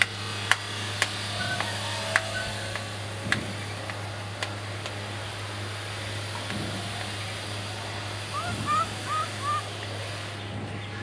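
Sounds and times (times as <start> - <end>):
steady low hum: 0.0 - 11.0
short rising squeaky calls: 1.3 - 3.1, 8.3 - 9.8.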